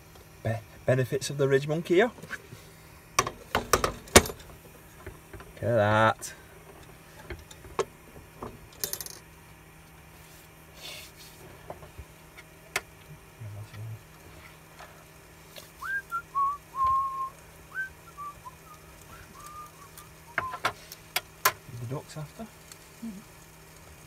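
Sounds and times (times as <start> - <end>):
person whistling: 15.8 - 20.6.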